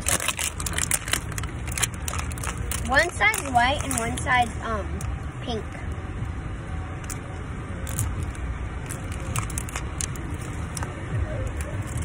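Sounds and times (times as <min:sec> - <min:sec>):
plastic capsules clicking: 0:00.0 - 0:04.4, 0:07.8 - 0:12.0
low rumble inside a car: 0:00.0 - 0:12.0.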